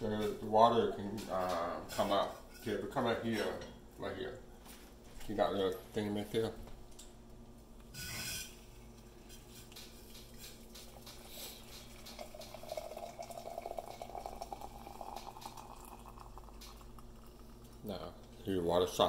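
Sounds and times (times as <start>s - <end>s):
water pouring into metal pot: 10.4s - 17.8s.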